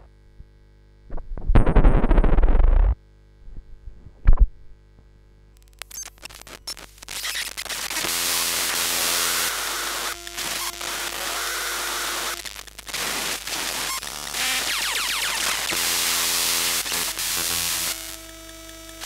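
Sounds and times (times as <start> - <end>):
faint hum tones: 0.0 - 7.6
crackling buzz: 0.9 - 19.0
electromagnetic clicks: 1.1 - 3.0, 4.2 - 19.0.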